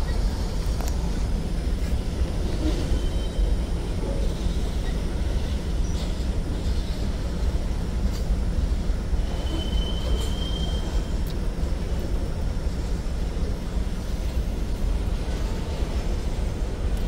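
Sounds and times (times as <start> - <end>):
train wheels rumbling on rail: 0.0 - 17.0
high wheel squeal: 2.7 - 3.6, 9.2 - 11.2.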